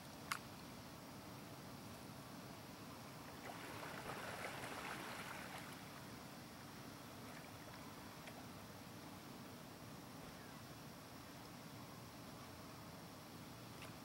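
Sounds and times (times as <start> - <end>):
paddle strokes splashing: 3.4 - 5.9.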